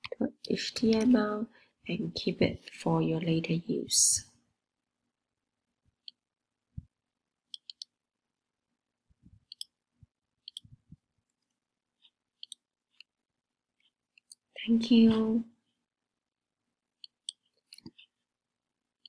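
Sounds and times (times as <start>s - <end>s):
computer mouse clicks: 0.4s - 1.1s, 7.5s - 8.0s, 9.5s - 9.8s, 10.4s - 10.7s, 12.4s - 13.1s.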